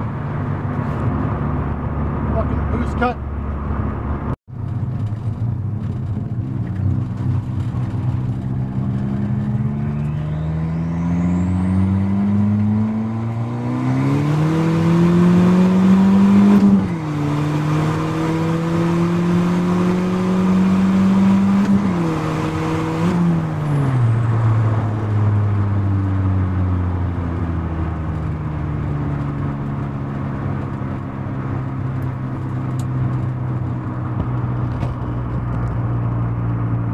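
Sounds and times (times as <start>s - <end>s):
car engine accelerating: 0.0s - 36.9s.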